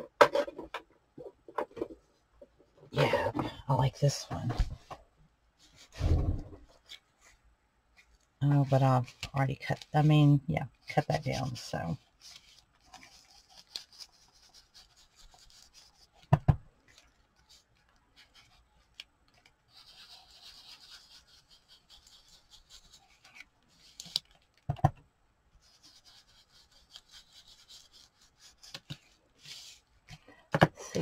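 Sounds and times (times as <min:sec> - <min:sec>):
foam tool scrubbing paper: 0:08.4 - 0:16.3, 0:19.6 - 0:24.2, 0:25.6 - 0:29.9.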